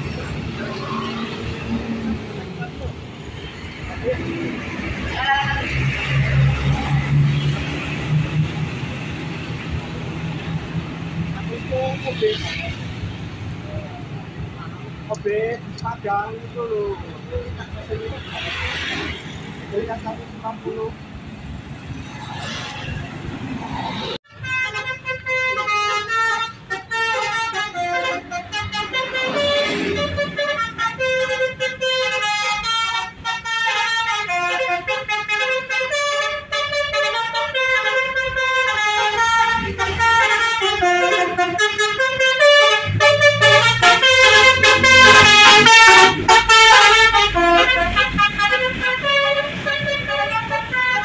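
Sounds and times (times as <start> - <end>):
road traffic: 0.0 - 51.0
musical bus air horn: 24.3 - 51.0
motorcycle: 29.1 - 30.6.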